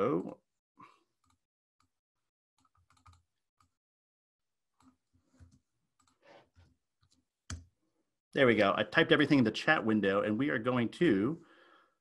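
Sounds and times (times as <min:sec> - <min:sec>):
keyboard typing: 0:02.6 - 0:03.8.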